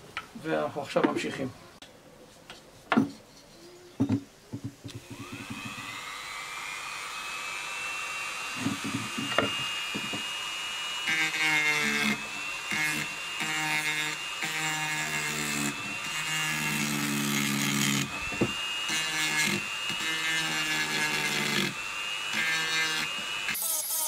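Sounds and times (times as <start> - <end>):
rotary tool grinding wood: 4.9 - 24.0.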